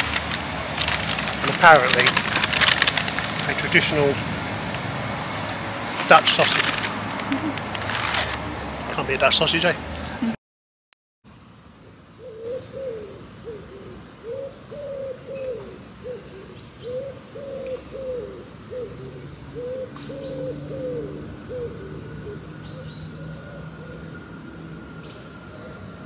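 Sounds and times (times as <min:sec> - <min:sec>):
small birds chirping: 0:11.8 - 0:26.0
pigeon cooing: 0:12.2 - 0:24.2.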